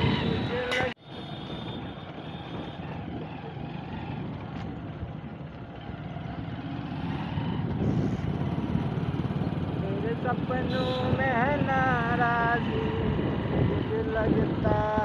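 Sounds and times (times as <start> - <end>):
motorcycle engine: 0.0 - 15.0
road noise: 0.0 - 15.0.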